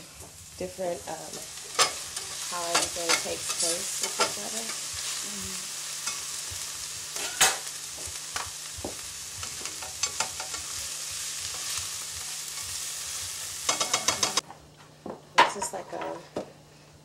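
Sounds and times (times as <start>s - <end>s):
vegetables sizzling in a pan: 0.0s - 14.4s
utensil clicking and scraping pan: 1.7s - 4.5s, 9.4s - 10.8s, 13.6s - 14.4s.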